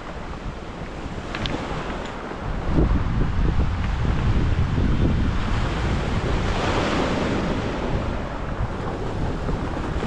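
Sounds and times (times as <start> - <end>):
waves washing on pebble beach: 0.0 - 10.0
wind rumbling on microphone: 0.0 - 10.0.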